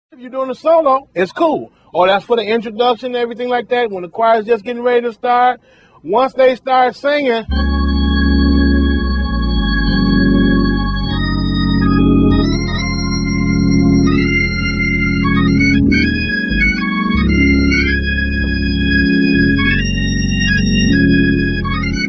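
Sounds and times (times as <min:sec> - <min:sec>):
church organ playing chords: 0:07.4 - 0:22.0.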